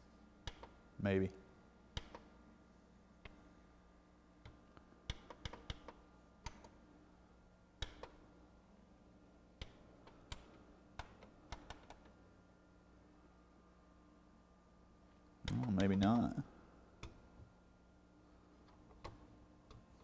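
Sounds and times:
low steady hum: 0.0s - 20.0s
cd changer mechanism clicking: 0.4s - 0.8s, 1.9s - 2.3s, 4.4s - 6.8s, 7.8s - 8.2s, 9.6s - 12.1s, 15.4s - 16.2s.

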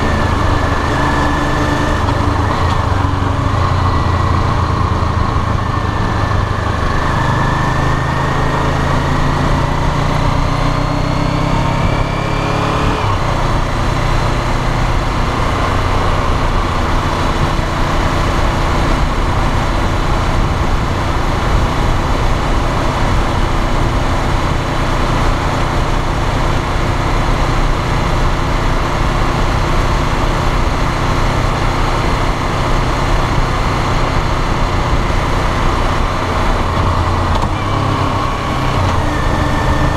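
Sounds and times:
wind noise on microphone: 11.8s - 39.9s.

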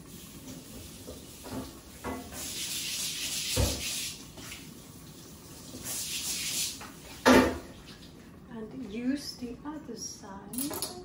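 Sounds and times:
kitchen tap running: 0.0s - 8.4s.

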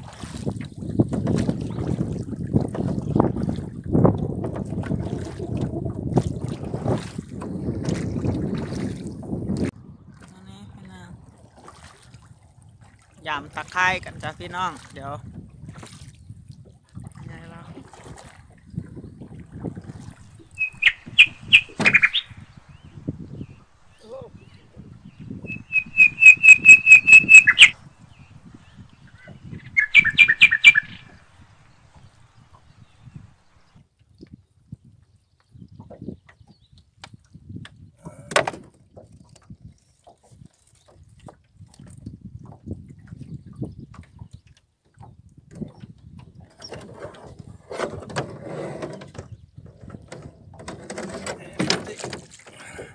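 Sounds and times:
songbird singing whistled notes: 20.4s - 33.2s.

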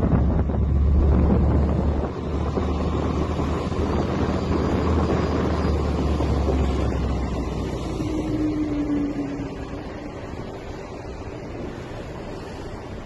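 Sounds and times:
boat engine drone: 0.0s - 13.0s
water rushing past boat: 0.0s - 13.0s
wind on microphone: 0.0s - 13.0s.

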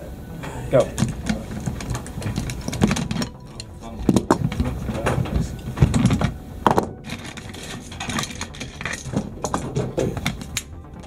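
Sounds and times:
metal gun parts clicking: 1.0s - 10.8s.

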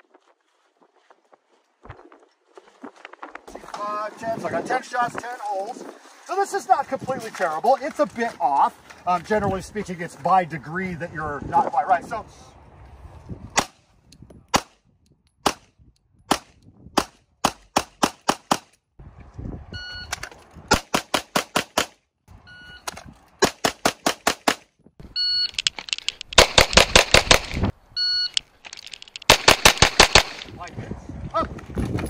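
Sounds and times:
shot timer beep: 25.2s - 25.6s, 28.0s - 28.4s
pistol shots: 26.4s - 27.7s, 29.3s - 30.5s.

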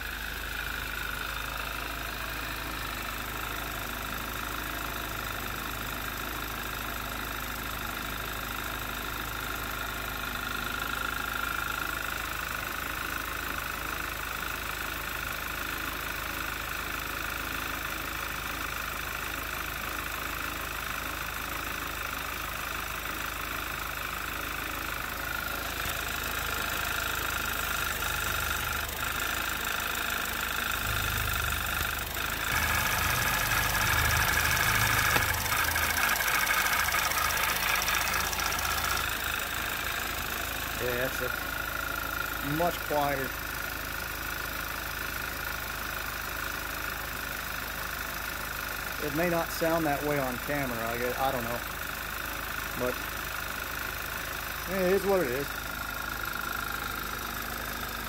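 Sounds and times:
car engine idling: 0.0s - 58.0s
engine clicking: 17.6s - 58.0s.

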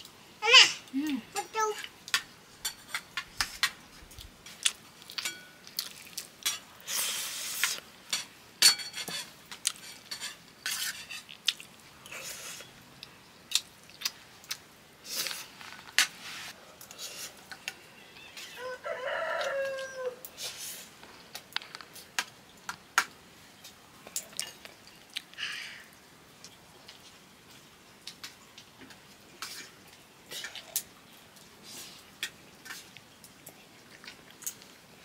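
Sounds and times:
spoon scraping a steel plate: 8.1s - 11.3s.

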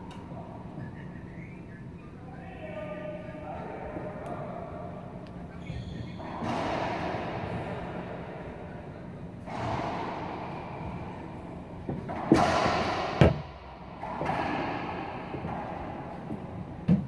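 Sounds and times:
racquetball hits echoing: 6.0s - 17.0s.

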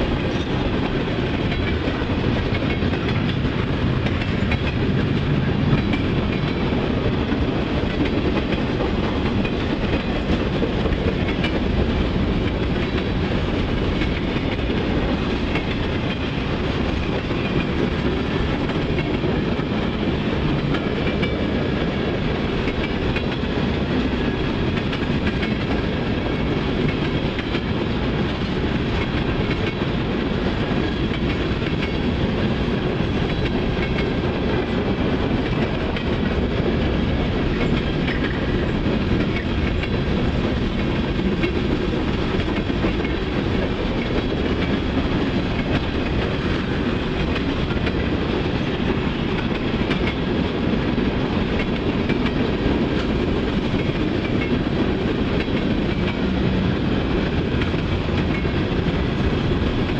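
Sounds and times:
freight train wheels rumbling: 0.0s - 59.9s
faint rail clicks: 0.1s - 23.5s, 24.1s - 32.1s, 57.4s - 59.0s.

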